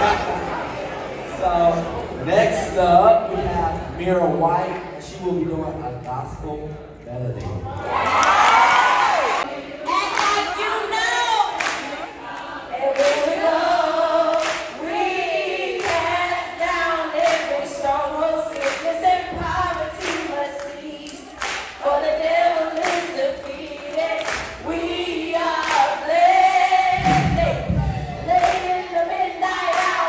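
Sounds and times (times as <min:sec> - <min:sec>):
woman singing gospel solo: 0:09.8 - 0:30.0.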